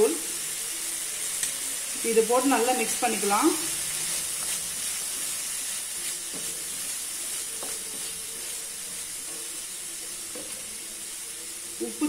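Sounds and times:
vegetables sizzling in oil: 0.0s - 12.0s
wooden spatula scraping pan: 3.8s - 9.4s.

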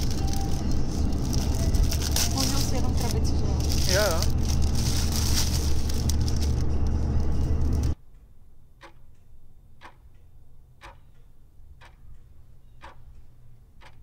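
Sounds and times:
car road noise: 0.0s - 8.0s
clock ticking: 8.0s - 14.0s.

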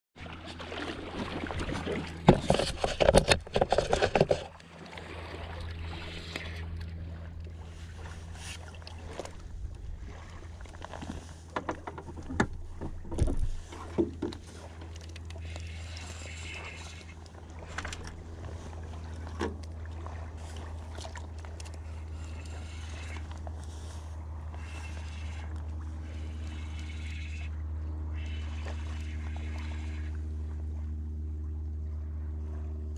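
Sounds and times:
boat motor humming: 0.2s - 32.9s
water slapping against hull: 0.2s - 32.9s.

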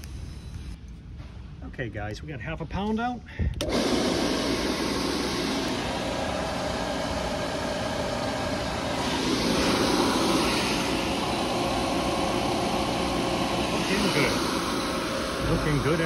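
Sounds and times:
compressor machine running: 3.5s - 16.0s.

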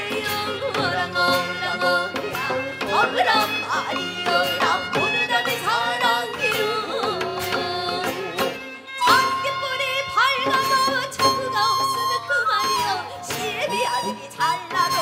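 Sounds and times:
person singing with vibrato: 0.0s - 15.0s
bamboo flute: 6.0s - 15.0s.

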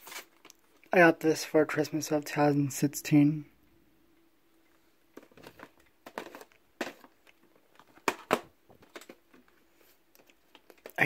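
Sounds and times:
plastic cases clicking and scraping: 5.1s - 11.0s.

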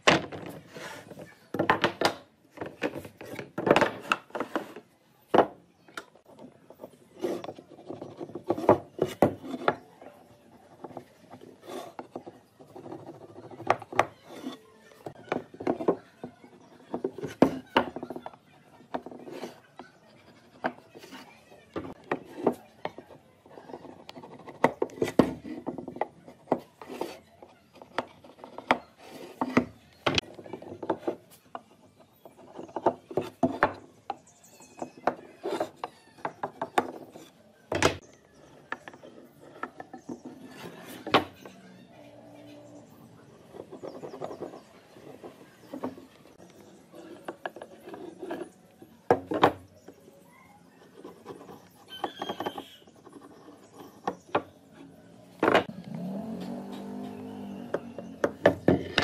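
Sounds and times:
wooden boards knocking and sliding: 0.0s - 9.9s, 10.6s - 19.6s, 20.5s - 34.2s, 34.8s - 41.6s, 43.5s - 48.5s, 49.1s - 50.0s, 51.0s - 59.0s
marking gauge scraping wood: 11.1s - 14.6s, 38.8s - 41.6s.

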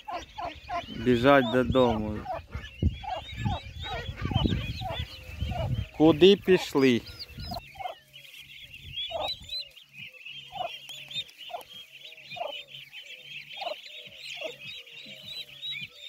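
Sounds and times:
turkey hen clucking: 0.0s - 16.0s
turkey poults peeping: 0.0s - 16.0s.

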